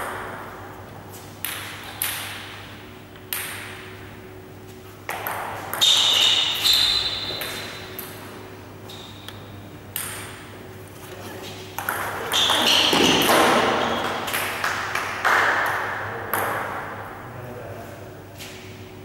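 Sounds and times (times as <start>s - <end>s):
steady low hum: 0.0s - 19.0s
brief high squeak: 5.8s - 7.4s
table tennis ball clicks: 9.2s - 10.5s.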